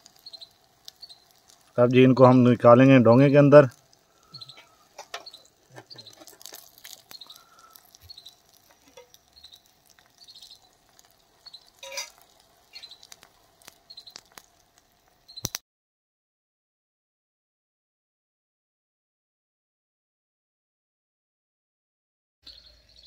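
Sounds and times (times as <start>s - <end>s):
faint irregular clicks: 0.0s - 1.8s, 3.7s - 15.6s
small birds chirping: 0.0s - 15.6s, 22.4s - 23.0s.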